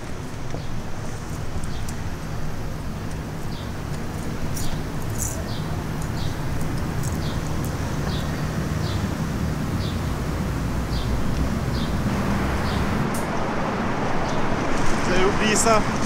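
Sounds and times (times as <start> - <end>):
high-heeled footsteps on pavement: 0.0 - 9.1
city traffic rumble: 0.0 - 16.0
vehicle passing: 2.4 - 16.0.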